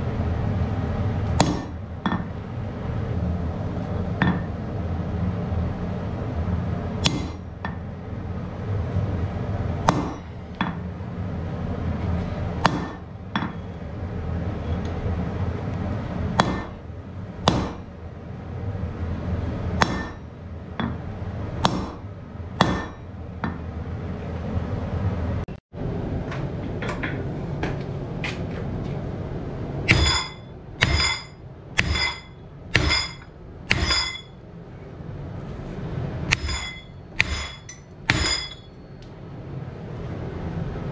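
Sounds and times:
low hum: 0:00.0 - 0:40.9
hammer ringing on anvil: 0:19.8 - 0:20.2, 0:22.6 - 0:23.6, 0:29.9 - 0:34.4, 0:36.3 - 0:38.8.

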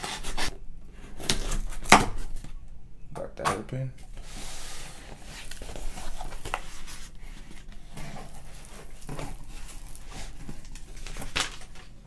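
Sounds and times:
cardboard box rustling and scraping: 0:04.2 - 0:11.5.

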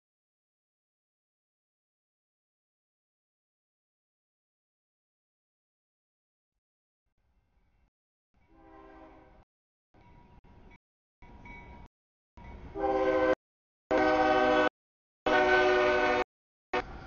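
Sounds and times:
locomotive air horn blasts: 0:08.5 - 0:09.4, 0:12.7 - 0:17.0.

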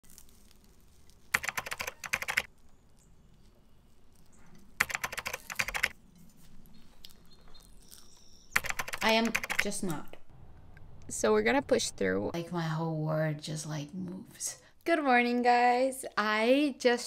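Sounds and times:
croissant pastry crackling: 0:00.0 - 0:04.8.

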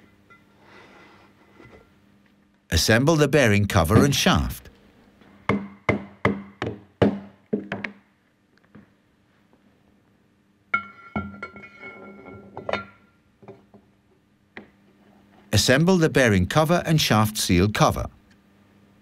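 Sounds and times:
mallet knocking on metal: 0:05.5 - 0:07.9.

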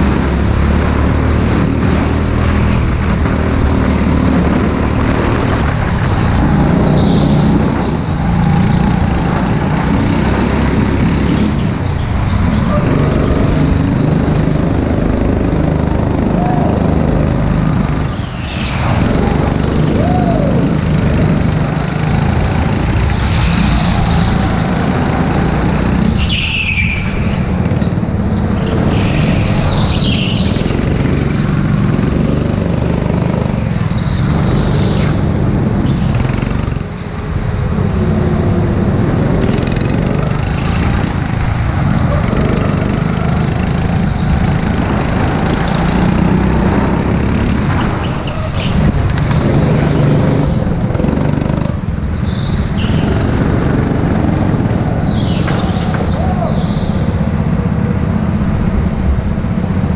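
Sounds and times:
go-kart engine running hard: 0:00.0 - 0:59.9
tyre squeals: 0:16.0 - 0:21.5, 0:22.8 - 0:31.2, 0:50.3 - 0:57.2.

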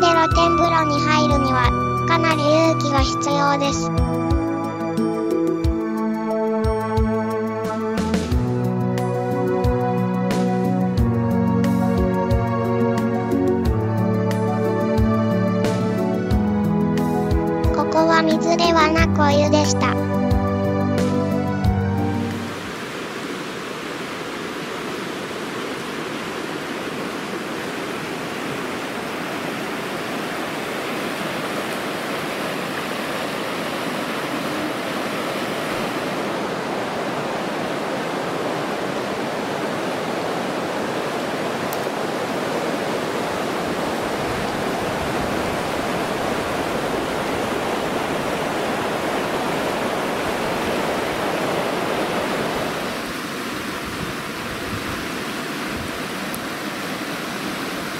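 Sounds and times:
river water rushing over rocks: 0:22.3 - 0:57.9.

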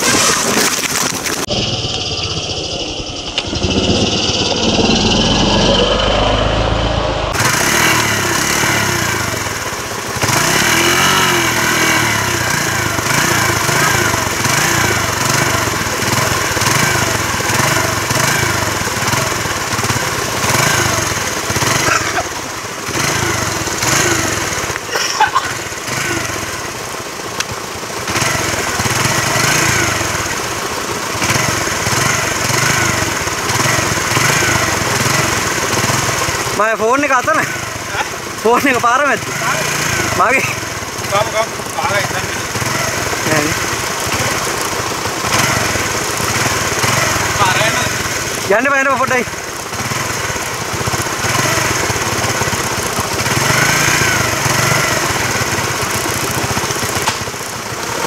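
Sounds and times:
small engine revving unevenly: 0:00.0 - 0:58.0.

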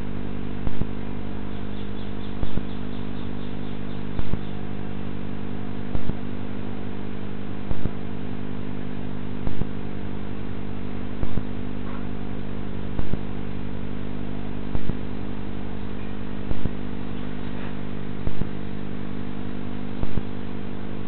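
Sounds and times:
electrical hum with hiss: 0:00.0 - 0:21.0.

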